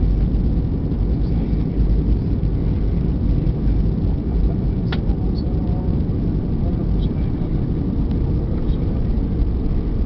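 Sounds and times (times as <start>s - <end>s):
airliner cabin engine rumble: 0.0s - 10.0s.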